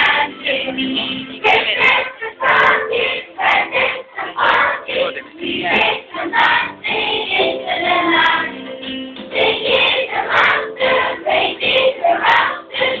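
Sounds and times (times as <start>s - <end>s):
children singing in chorus: 1.4s - 8.5s, 9.4s - 13.0s.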